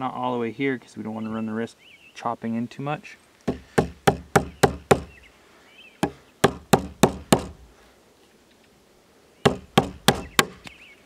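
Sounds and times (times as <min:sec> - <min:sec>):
chisel struck chopping wood: 0:03.5 - 0:05.1, 0:06.0 - 0:07.6, 0:09.5 - 0:10.7.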